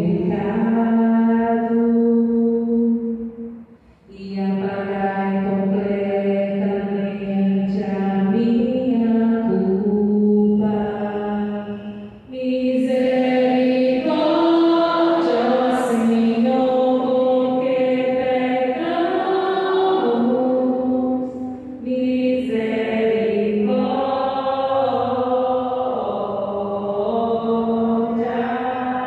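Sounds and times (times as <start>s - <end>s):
woman singing into a microphone: 0.0s - 3.0s, 4.1s - 29.0s.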